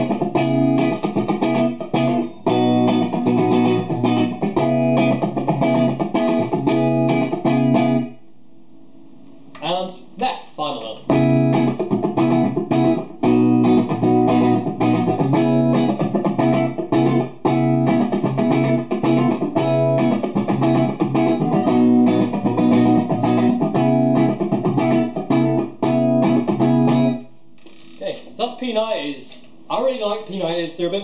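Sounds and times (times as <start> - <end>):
electric guitar rock playing: 0.0 - 8.2, 11.1 - 27.3.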